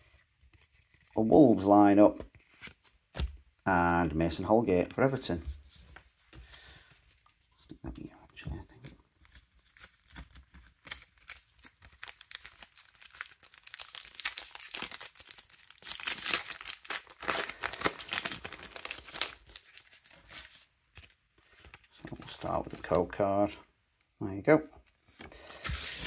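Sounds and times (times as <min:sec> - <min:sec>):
plastic wrapper crinkling and tearing: 0:09.3 - 0:23.2, 0:25.2 - 0:26.0.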